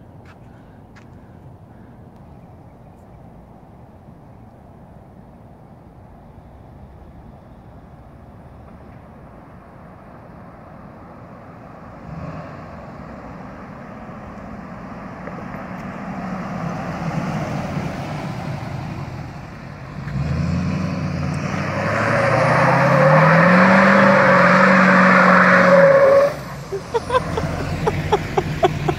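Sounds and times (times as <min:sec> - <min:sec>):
diesel engine revving: 0:18.4 - 0:28.9
tires squealing: 0:19.9 - 0:28.9.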